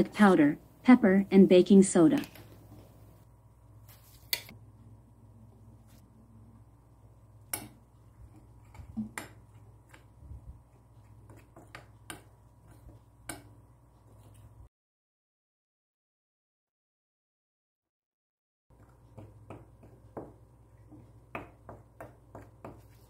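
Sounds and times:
low steady hum: 0.0 - 14.7
spoon stirring flour in bowl: 7.5 - 14.6.

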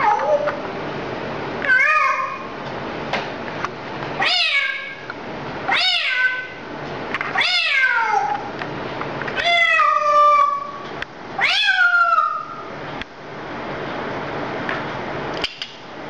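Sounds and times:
parrot mimicking cat meow: 0.0 - 0.6, 1.6 - 2.5, 4.2 - 5.0, 5.7 - 6.6, 7.3 - 8.5, 9.4 - 10.8, 11.4 - 12.6.

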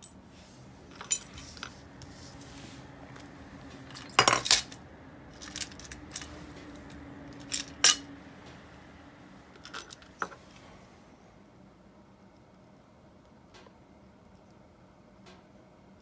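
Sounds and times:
small metal parts clinking: 0.9 - 1.7, 3.9 - 8.1, 9.6 - 10.4.

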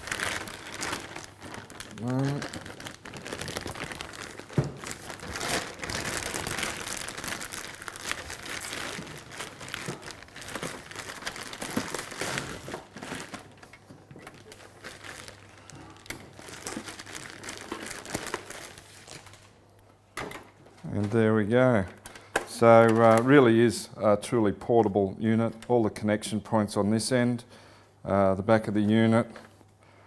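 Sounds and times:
plastic bag crinkling: 0.0 - 19.6.

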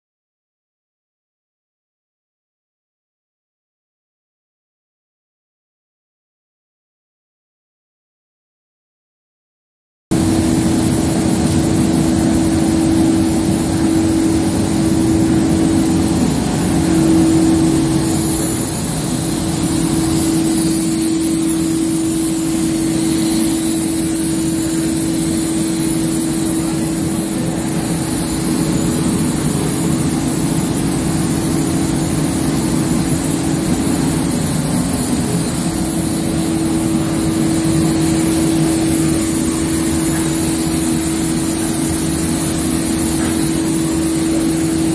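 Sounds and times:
faint high whine: 10.1 - 44.9
machinery humming: 10.1 - 44.9.

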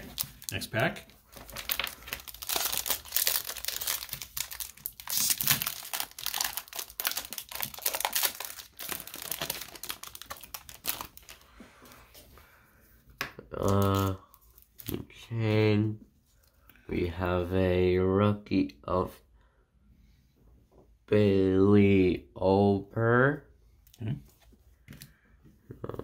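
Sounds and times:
wrapper crinkling and tearing: 0.0 - 11.4, 13.6 - 15.0.

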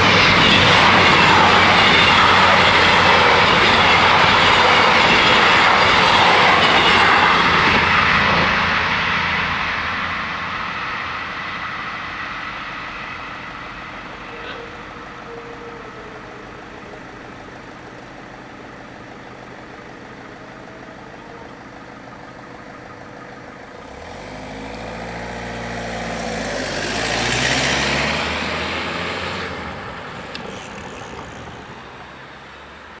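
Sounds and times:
vehicle driving past: 23.6 - 32.8.

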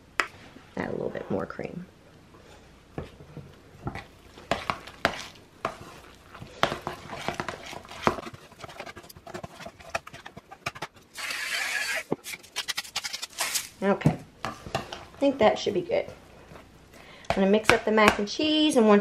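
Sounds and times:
metal spoon scraping a pot: 4.5 - 13.6.

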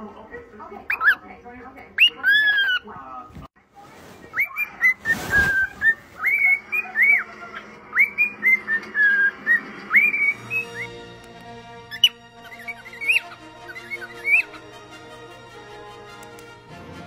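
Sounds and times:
cockatiel whistling: 4.4 - 11.2, 11.9 - 14.7.

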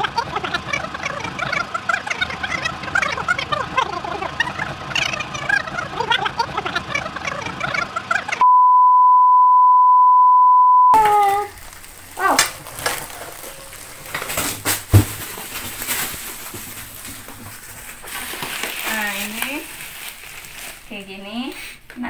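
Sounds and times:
electronic beep tone: 8.4 - 11.0
plastic packaging crinkling: 11.0 - 21.6.

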